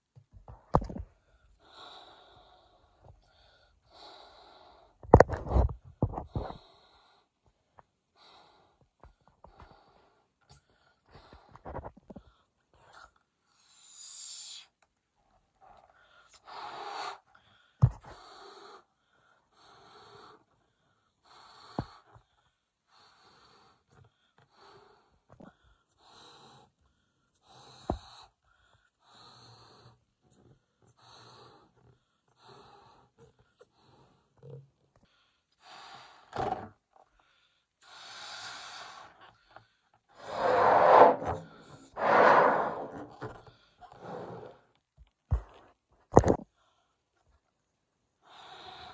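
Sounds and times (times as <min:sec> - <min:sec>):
puffs of breath blowing balloon: 0:40.2 - 0:43.3.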